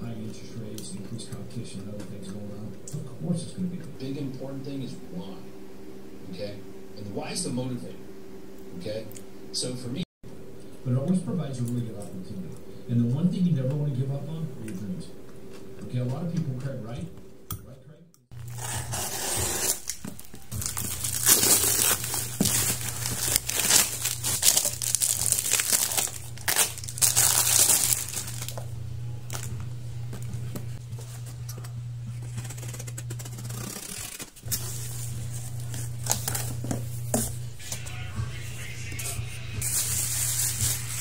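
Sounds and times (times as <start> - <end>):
plastic packaging rustling: 18.4 - 28.7, 29.3 - 29.6, 32.3 - 37.3, 39.6 - 41.0
plastic wrapping tearing and crinkling: 18.4 - 28.7, 32.2 - 36.6, 39.6 - 41.0
soft background music: 18.5 - 31.7.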